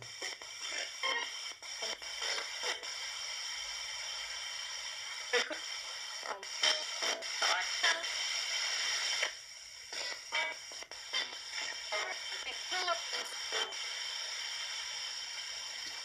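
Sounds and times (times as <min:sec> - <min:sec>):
radio static hiss: 0:00.0 - 0:16.0
snatches of broadcast voices: 0:00.0 - 0:16.0
snatches of radio music: 0:00.0 - 0:16.0.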